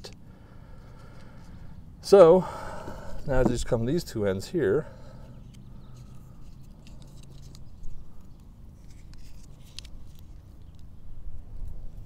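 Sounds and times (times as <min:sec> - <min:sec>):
tape crinkling and clicking: 0:05.5 - 0:10.9.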